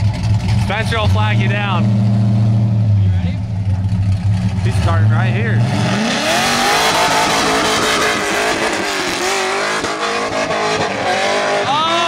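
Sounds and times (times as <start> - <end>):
car engine revving: 0.0 - 12.0
tires squealing: 3.8 - 12.0.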